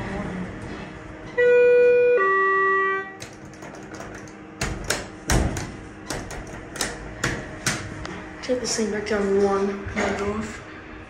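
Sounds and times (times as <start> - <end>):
sharp knocks and clicks: 3.2 - 7.9.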